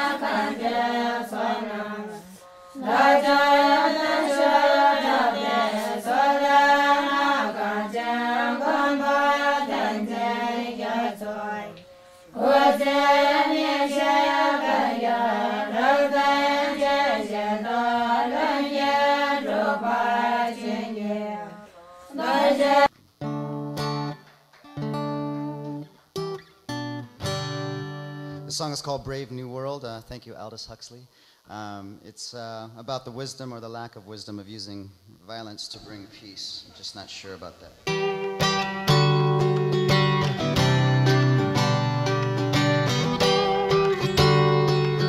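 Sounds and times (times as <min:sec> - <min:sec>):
plucked guitar notes: 0:23.2 - 0:28.5, 0:37.9 - 0:45.0.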